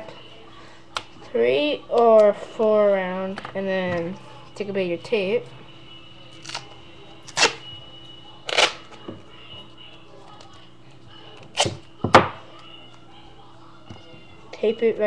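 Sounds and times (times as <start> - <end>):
adhesive tape ripping: 6.4 - 6.7, 7.3 - 7.6, 8.5 - 8.9.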